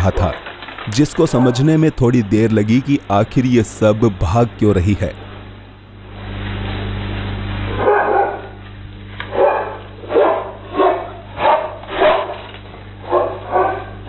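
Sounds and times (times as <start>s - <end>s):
steady low hum: 0.0s - 14.0s
dog barking: 1.3s - 1.7s, 7.7s - 8.6s, 9.3s - 12.4s, 13.0s - 14.0s.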